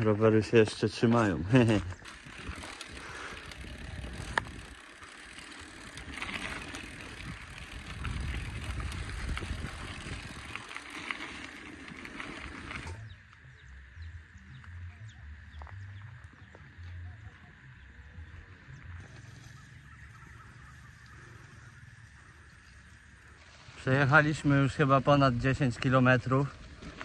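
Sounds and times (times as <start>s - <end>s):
bicycle tyres rumbling and rattling: 0.0s - 27.0s.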